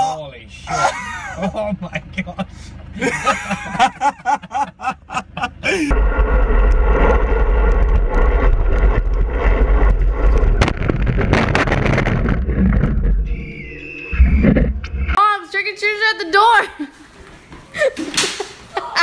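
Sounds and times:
wind buffeting camera: 6.0 - 15.2.

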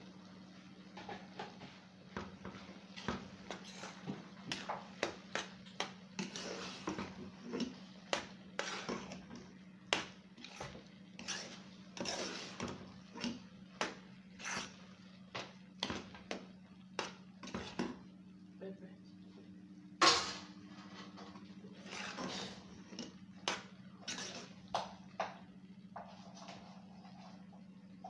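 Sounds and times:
steady low hum: 0.0 - 28.0
metal spoon scraping a pot: 6.2 - 7.8, 8.6 - 9.3, 10.4 - 13.4, 14.4 - 14.8, 21.8 - 23.1, 24.0 - 24.6.

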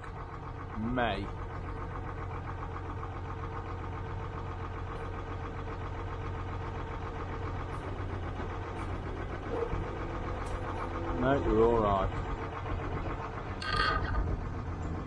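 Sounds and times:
diesel truck engine running: 0.0 - 15.0
winch pulling: 9.6 - 14.5.

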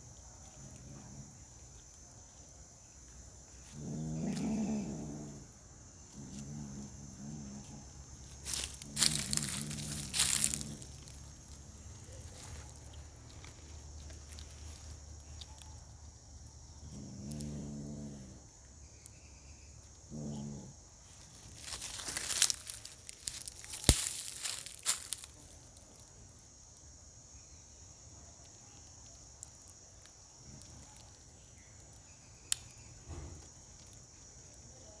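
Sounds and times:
insects chirring: 0.0 - 35.0
cat growling: 3.7 - 5.5, 6.1 - 7.8, 16.8 - 18.4, 20.1 - 20.7
dry leaves rustling and crackling: 8.3 - 14.9, 21.2 - 26.1.

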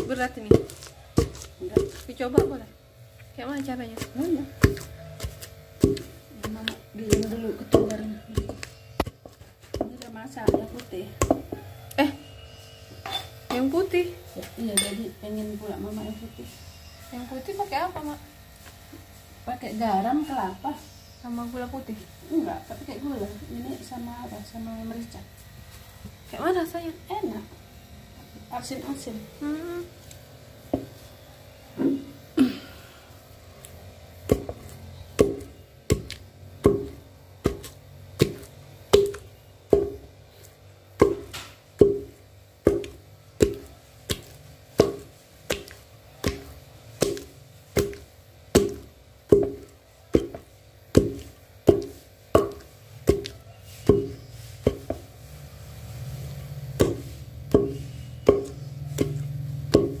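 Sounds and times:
wooden pestle pounding in mortar: 0.0 - 2.8, 3.4 - 11.8, 34.2 - 60.0.

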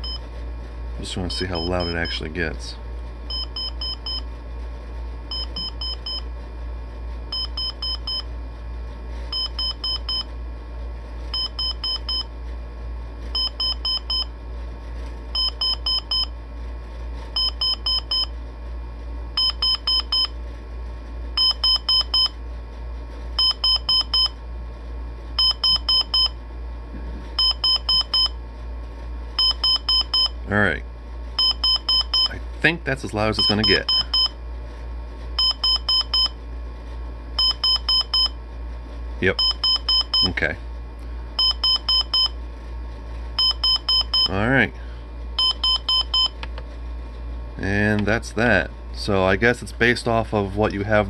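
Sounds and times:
alarm clock beeping: 3.3 - 4.2, 5.3 - 6.2, 7.3 - 8.2, 9.3 - 10.3, 11.4 - 12.2, 13.4 - 14.3, 15.4 - 16.3, 17.4 - 18.3, 19.4 - 20.3, 21.4 - 22.3, 23.4 - 24.3, 25.4 - 26.3, 27.4 - 28.3, 29.4 - 30.3, 31.4 - 32.3, 33.4 - 34.3, 35.4 - 36.3, 37.4 - 38.3, 39.4 - 40.3, 41.4 - 42.3, 43.4 - 44.3, 45.4 - 46.3.

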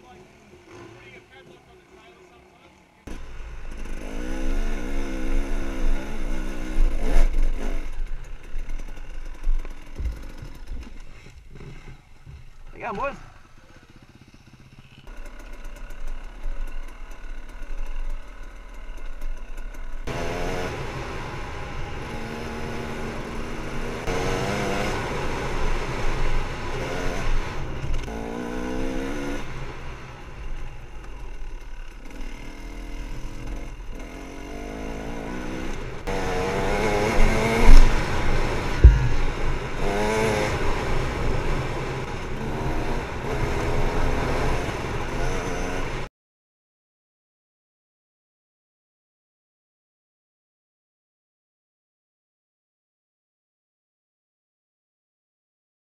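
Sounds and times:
motorbike engine revving: 0.0 - 1.8, 3.1 - 46.1
sharp knocks: 38.8 - 39.6.

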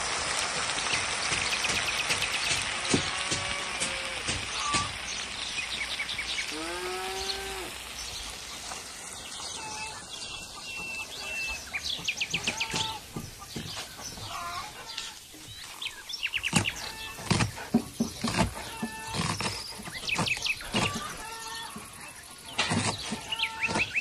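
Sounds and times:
songbirds chirping and trilling: 0.7 - 24.0
fowl calling: 9.4 - 15.8, 20.6 - 22.0.

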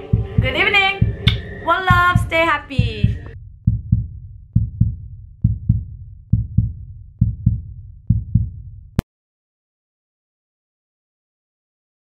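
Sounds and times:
heartbeat thumps: 0.0 - 9.0.

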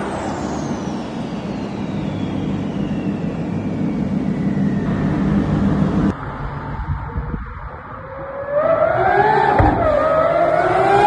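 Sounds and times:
high whine falling in pitch: 0.0 - 8.6
sports car engine drone: 0.0 - 11.0.

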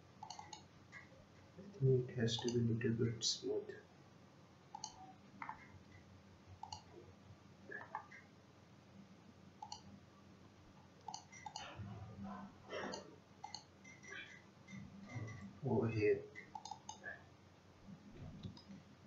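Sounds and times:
low room hum: 0.0 - 19.0
faint computer mouse clicks: 0.2 - 1.1, 4.7 - 6.9, 9.6 - 9.9, 11.0 - 11.7, 12.9 - 15.4, 16.4 - 17.0.

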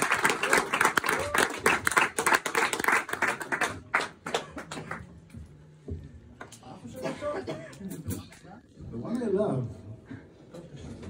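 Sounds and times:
audience clapping: 0.0 - 5.3.

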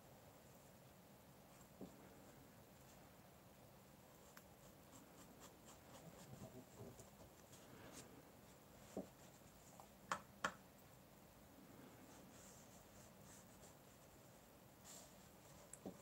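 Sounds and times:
paintbrush scratching: 4.2 - 9.7.

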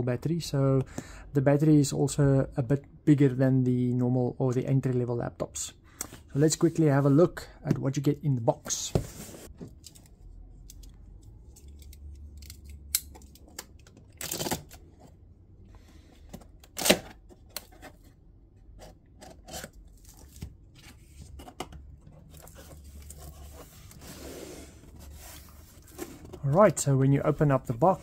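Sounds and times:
tape tearing: 14.1 - 14.8, 16.6 - 17.2
cardboard rubbing: 22.3 - 26.6.

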